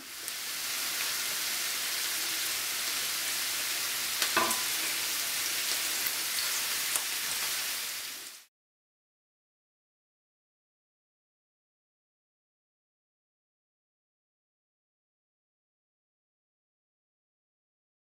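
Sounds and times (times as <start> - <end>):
vegetables sizzling in a pan: 0.0 - 8.5.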